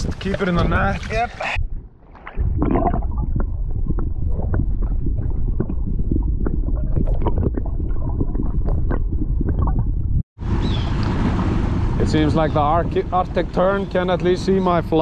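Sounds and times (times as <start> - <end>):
water clicks and crackles: 0.0 - 10.3
muffled underwater rumble: 1.6 - 10.3.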